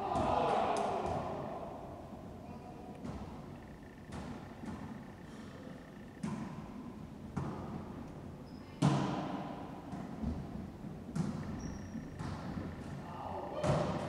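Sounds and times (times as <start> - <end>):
ball smacks echoing in court: 0.1 - 1.6, 3.0 - 3.5, 4.1 - 4.9, 6.2 - 7.9, 8.8 - 13.0, 13.6 - 14.0.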